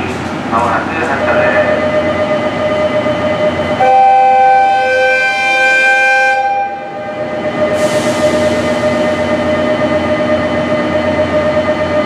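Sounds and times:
train humming: 0.0s - 12.0s
train horn long blast: 3.8s - 7.0s.

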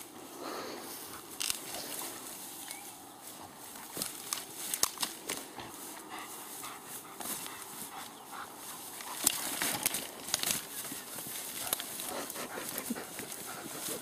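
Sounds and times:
dog clicks and scuffs: 3.8s - 14.0s.

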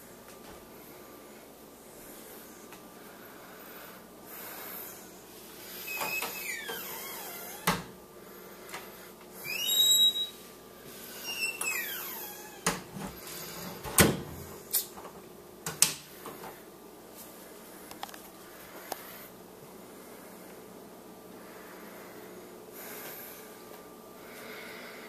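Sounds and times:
door creaking on hinges: 5.8s - 7.9s, 11.3s - 12.9s.

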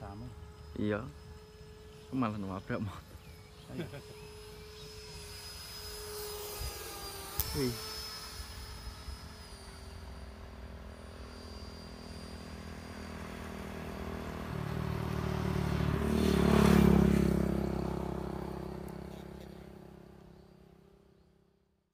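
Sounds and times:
motorbike engine passing: 13.2s - 20.2s.

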